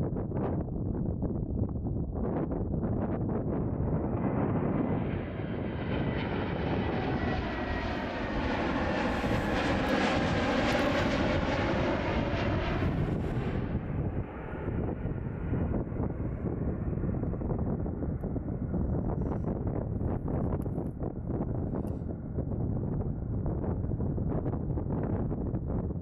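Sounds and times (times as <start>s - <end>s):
wind rumbling on microphone: 0.0s - 26.0s
airplane engine passing: 3.4s - 20.2s.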